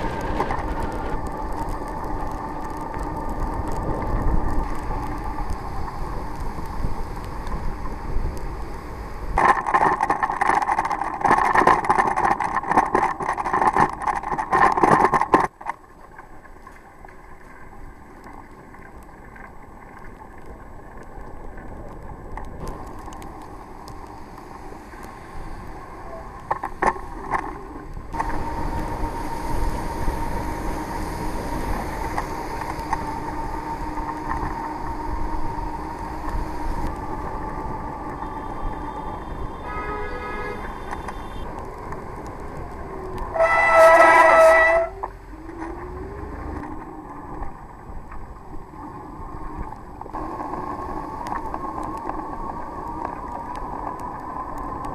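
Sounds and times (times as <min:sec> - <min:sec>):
traffic on wet streets: 0:00.0 - 0:15.8, 0:22.4 - 0:48.7
wind on camera: 0:00.0 - 0:15.8, 0:20.7 - 0:54.9
rushing rain: 0:00.0 - 0:54.9.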